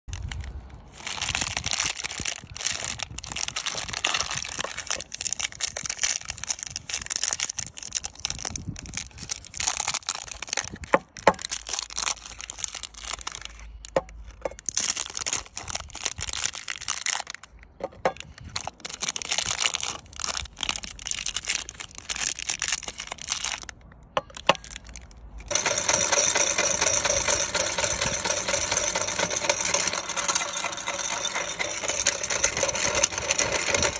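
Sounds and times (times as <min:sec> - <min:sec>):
plastic wrappers crinkling: 0:00.1 - 0:25.6.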